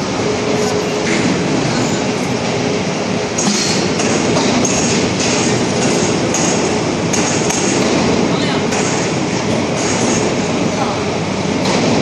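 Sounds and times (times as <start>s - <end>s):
factory machinery din: 0.0s - 12.0s.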